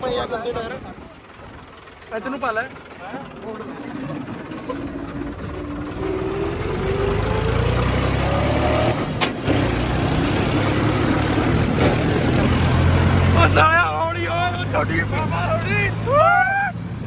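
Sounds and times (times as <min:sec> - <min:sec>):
tractor diesel engine revving: 0:00.1 - 0:17.0.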